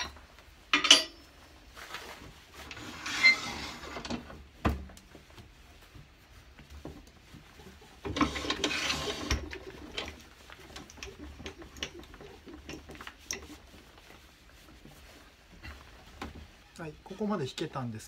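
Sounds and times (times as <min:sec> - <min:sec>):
lathe tailstock scraping rattle: 0:08.1 - 0:10.2.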